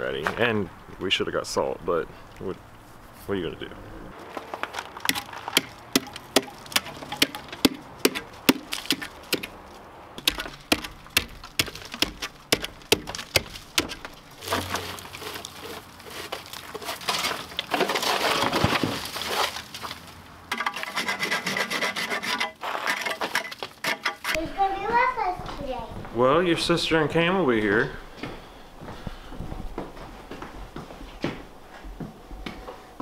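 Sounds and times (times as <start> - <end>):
tool knocking ice on steps: 5.0 - 9.5, 10.2 - 15.0
tool scraping ice: 14.0 - 24.4.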